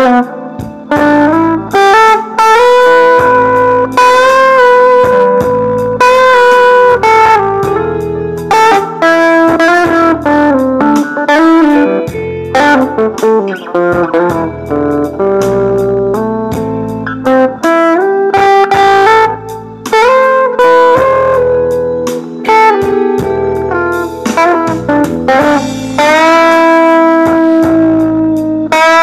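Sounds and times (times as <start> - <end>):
electric guitar blues: 0.0 - 29.0.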